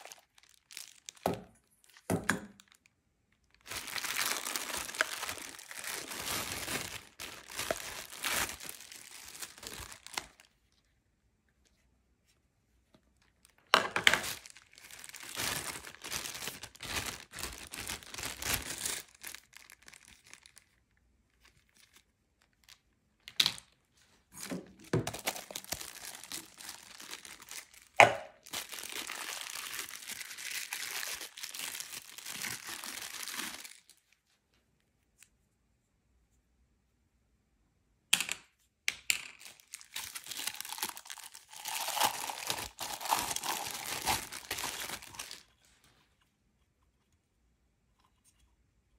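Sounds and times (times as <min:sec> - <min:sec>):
plastic packaging crinkling: 0:00.0 - 0:10.7, 0:13.2 - 0:23.8, 0:24.4 - 0:34.2, 0:39.2 - 0:45.9.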